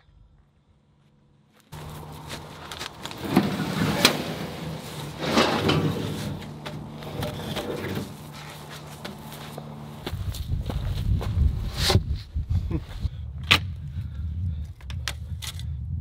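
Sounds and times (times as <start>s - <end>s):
steady low hum: 0.0s - 16.0s
wooden posts scraping: 1.7s - 10.4s.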